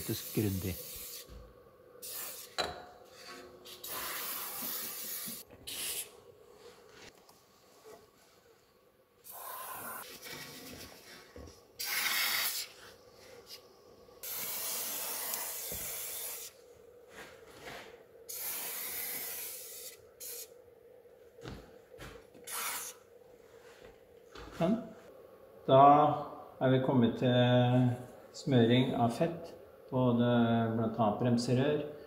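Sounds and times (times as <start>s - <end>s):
spray can hissing bursts: 0.1s - 1.3s, 2.0s - 2.6s, 3.7s - 6.1s, 9.3s - 10.0s, 11.8s - 12.7s, 14.2s - 16.5s, 18.3s - 20.5s, 22.5s - 23.0s.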